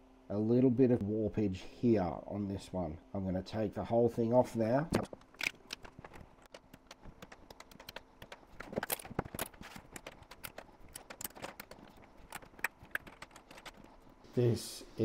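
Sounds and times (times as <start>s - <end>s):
plastic parts clicking and tapping: 4.9s - 14.2s.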